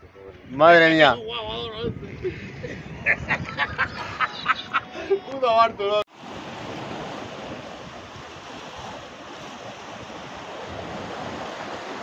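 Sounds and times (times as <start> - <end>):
wind on microphone: 0.0 - 12.0
sea surf washing on shore: 3.4 - 12.0.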